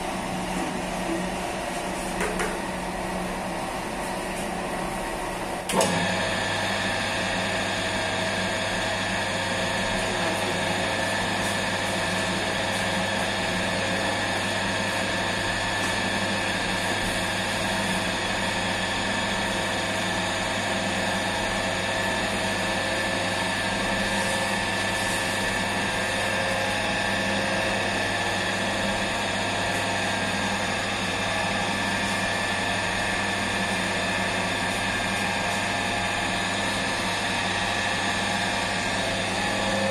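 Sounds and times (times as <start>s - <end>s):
mixer motor humming: 0.0s - 39.9s.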